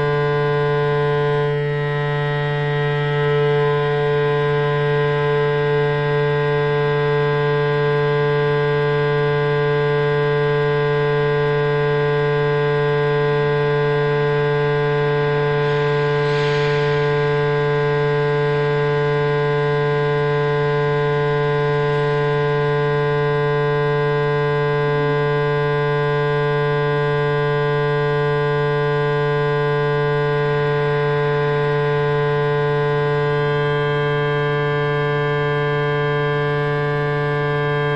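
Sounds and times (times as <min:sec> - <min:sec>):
electronic drone hum: 0:13.3 - 0:24.2.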